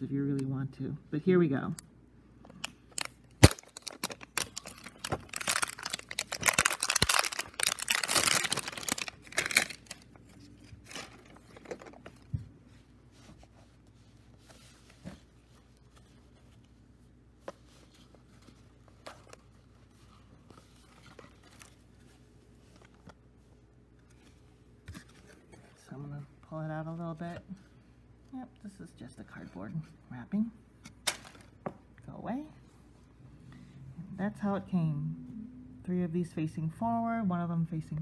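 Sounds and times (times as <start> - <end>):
plastic shrink wrap tearing: 2.9 - 12.0
plastic crinkling: 2.9 - 12.4.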